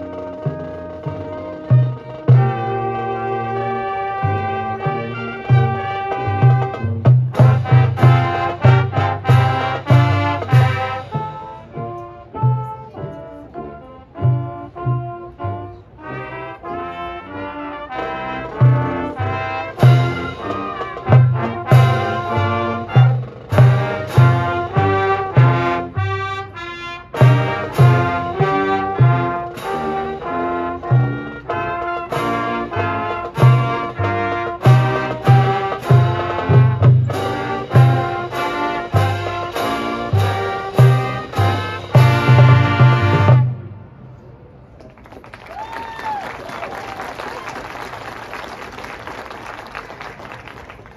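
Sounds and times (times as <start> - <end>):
brass melody: 0.0 - 44.1.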